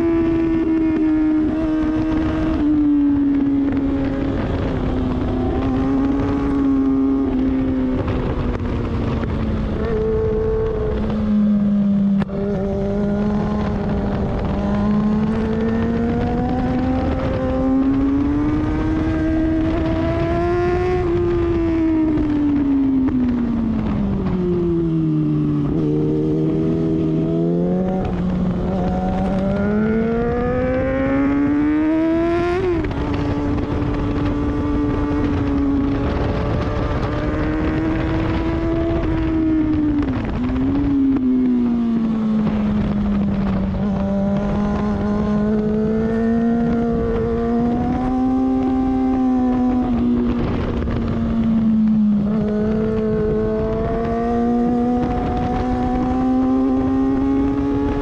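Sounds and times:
motorcycle engine accelerating: 0.0s - 58.0s
wind rush: 0.0s - 58.0s.

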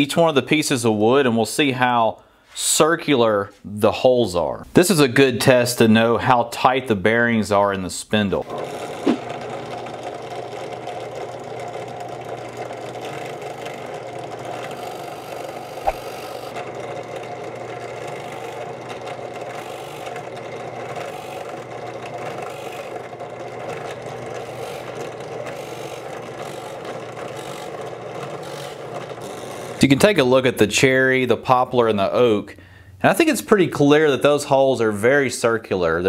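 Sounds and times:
drill bit drilling wood: 8.4s - 29.8s
drill press humming: 8.4s - 29.9s
sharp click: 15.8s - 16.2s.

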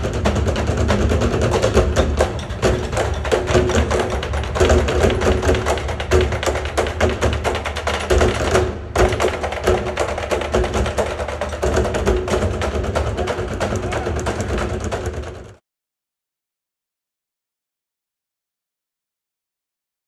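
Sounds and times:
show music with busy percussion: 0.0s - 15.6s.

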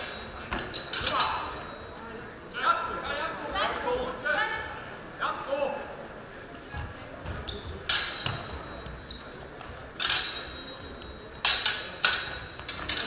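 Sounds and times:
sword blades clashing: 10.0s - 10.6s.

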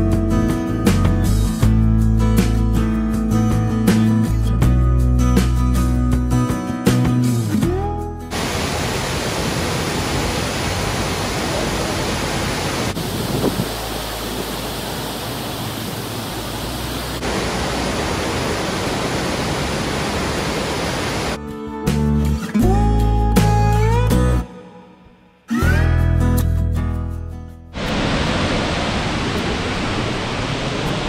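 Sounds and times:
acoustic guitar music: 0.0s - 8.4s, 21.4s - 27.8s
waterfall rushing: 8.3s - 21.4s, 27.8s - 31.0s.

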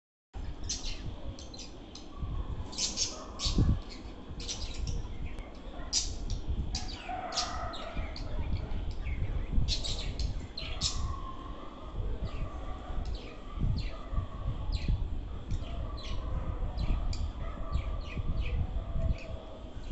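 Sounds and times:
budgerigars chirping: 2.7s - 6.2s, 6.8s - 11.2s
budgerigars warbling: 2.7s - 19.9s.

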